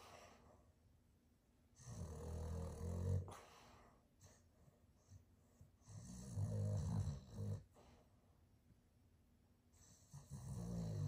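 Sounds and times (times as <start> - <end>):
dog snoring: 1.8 - 4.4, 5.8 - 8.0, 9.8 - 11.0.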